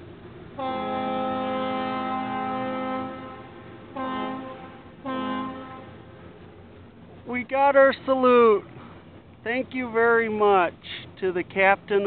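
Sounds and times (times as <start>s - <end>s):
ship's horn blasts: 0.4s - 7.2s.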